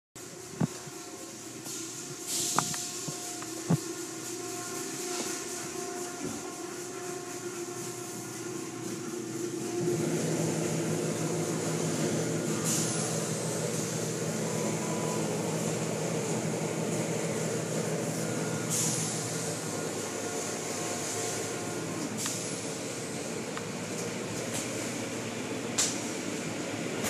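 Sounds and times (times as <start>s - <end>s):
spraying water: 0.2s - 25.0s
car wash motors droning: 0.2s - 27.0s
low motor hum: 0.2s - 27.0s
short hissing bursts: 0.3s - 6.0s.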